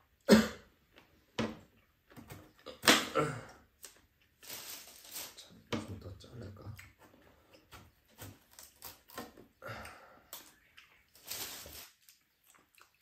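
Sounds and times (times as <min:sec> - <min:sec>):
knife peeling melon: 0:06.9 - 0:09.6.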